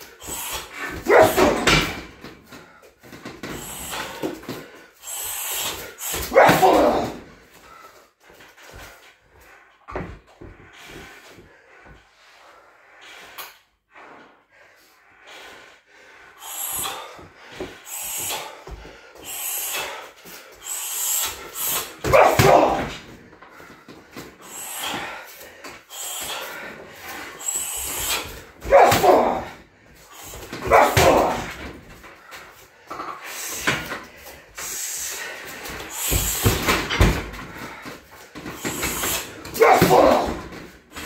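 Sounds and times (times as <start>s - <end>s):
sharp exhales: 0.0s - 1.7s, 3.4s - 6.3s, 12.4s - 22.1s, 23.5s - 28.6s, 32.2s - 39.5s
short bark-like shout: 6.3s - 7.2s, 22.1s - 22.8s, 28.6s - 29.5s.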